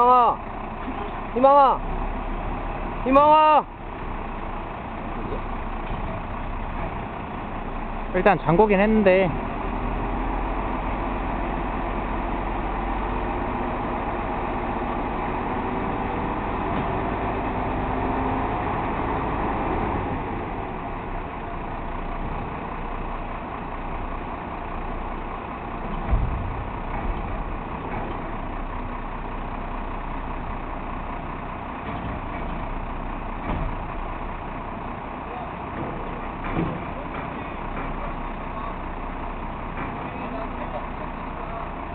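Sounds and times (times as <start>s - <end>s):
diesel engine running: 0.0s - 41.9s
metal clunk: 25.8s - 28.3s, 35.7s - 38.0s.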